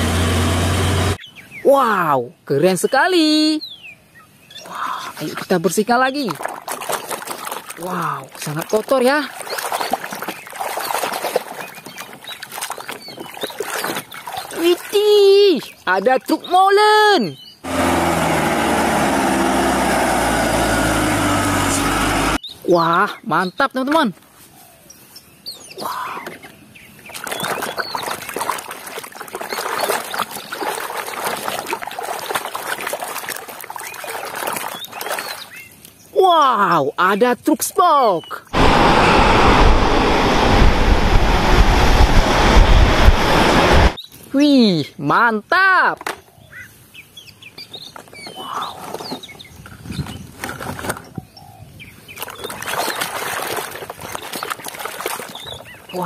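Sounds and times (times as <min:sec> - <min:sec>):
water sloshing in a plastic tub: 0:04.6 - 0:16.3, 0:26.0 - 0:36.0, 0:52.1 - 0:56.0
plastic toy trucks clattering: 0:48.9 - 0:51.1.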